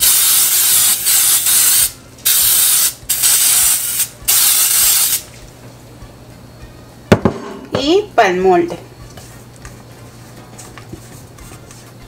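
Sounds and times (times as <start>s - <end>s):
aerosol spray hissing: 0.0s - 5.3s.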